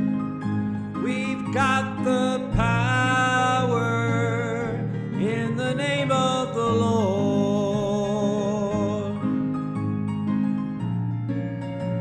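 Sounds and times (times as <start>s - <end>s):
instrumental accompaniment: 0.0s - 12.0s
person singing gospel: 1.0s - 9.4s.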